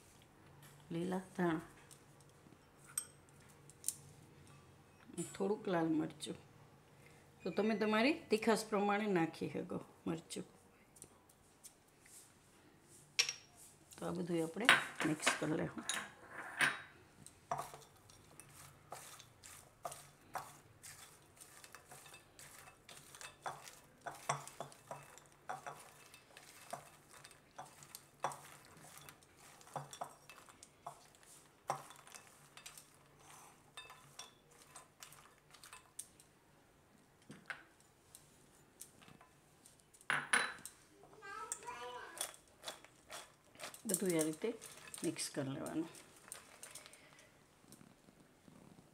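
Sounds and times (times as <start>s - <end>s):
spatula scraping glass bowl: 17.6s - 35.9s.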